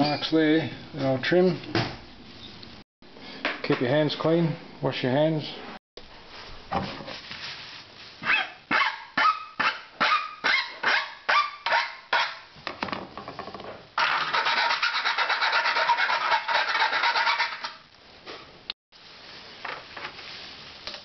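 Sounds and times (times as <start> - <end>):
hand file rasping on metal: 14.0 - 17.8.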